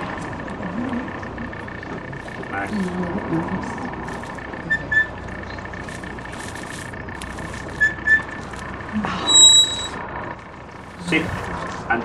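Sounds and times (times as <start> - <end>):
shepherd's whistle notes: 9.3 - 9.9.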